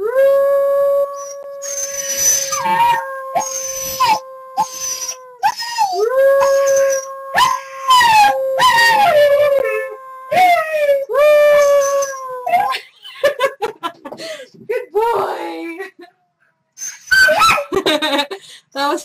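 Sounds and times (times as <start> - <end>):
puppy howling: 0.0 - 12.8, 16.8 - 17.8.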